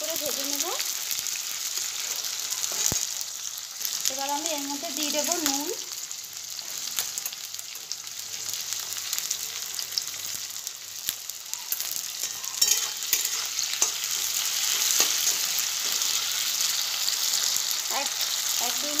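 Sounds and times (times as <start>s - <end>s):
vegetables sizzling in hot oil: 0.0s - 19.0s
spatula scraping a wok: 1.8s - 3.2s, 11.7s - 17.6s.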